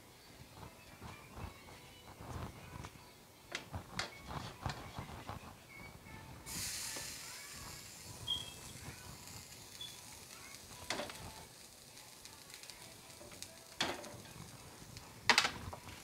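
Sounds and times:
meat sizzling in a pan: 0:06.5 - 0:16.0.

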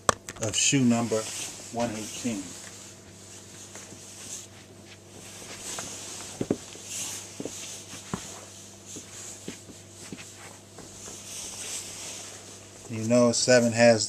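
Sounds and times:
rustling: 0:00.9 - 0:13.3
footsteps thumping on carpet: 0:03.0 - 0:12.9.

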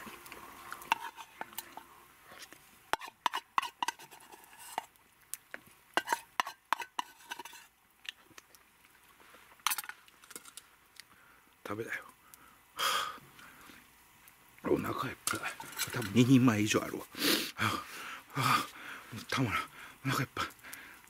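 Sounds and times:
spoon scraping metal cup: 0:00.9 - 0:01.8, 0:03.0 - 0:04.9, 0:06.0 - 0:07.7, 0:15.3 - 0:16.2.

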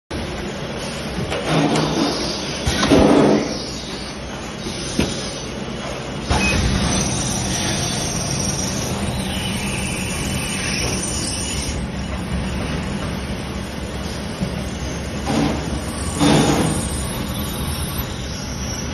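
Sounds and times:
drilling machine humming: 0:06.3 - 0:18.9.

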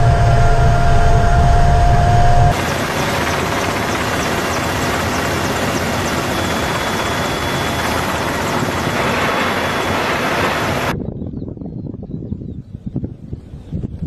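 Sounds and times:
helicopters flying low: 0:00.0 - 0:11.0.

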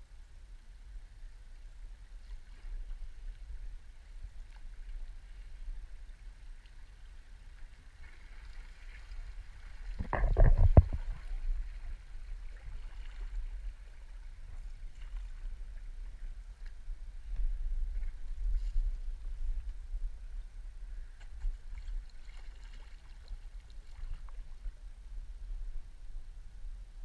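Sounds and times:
faint water hiss: 0:00.0 - 0:27.0
branches scraping against canoe: 0:08.8 - 0:11.9
small knocks on canoe: 0:09.9 - 0:11.5.

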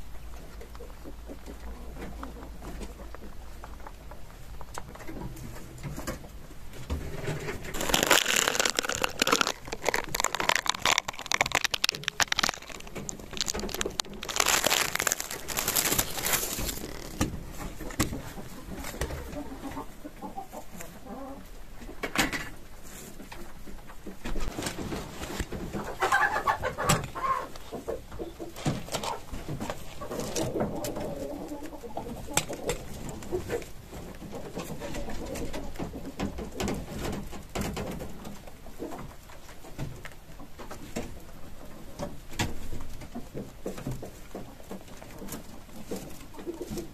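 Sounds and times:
rustling and scraping: 0:02.0 - 0:19.4, 0:22.3 - 0:27.9, 0:28.5 - 0:31.3.

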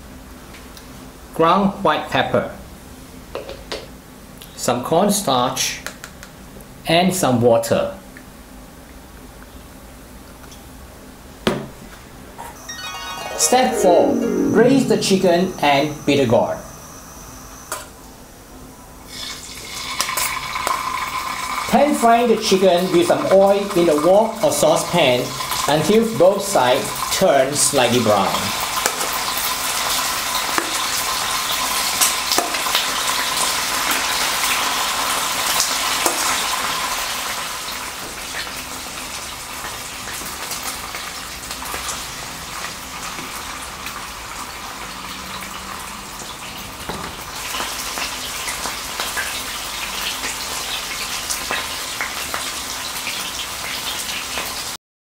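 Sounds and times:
chicken sizzling in hot oil: 0:19.1 - 0:54.8.

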